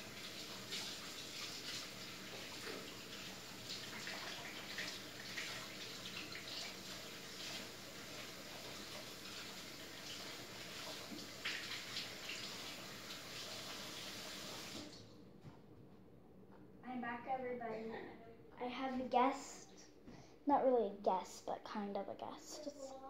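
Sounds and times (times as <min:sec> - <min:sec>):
tap water running into sink: 0:00.0 - 0:15.1.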